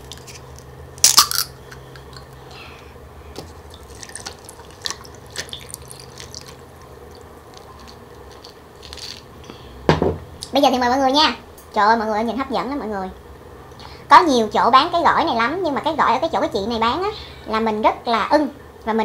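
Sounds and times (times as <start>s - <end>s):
can cracking open: 0.1s - 1.6s, 7.5s - 9.3s
liquid pouring and splashing: 3.4s - 9.2s
ice clinking: 3.7s - 9.2s.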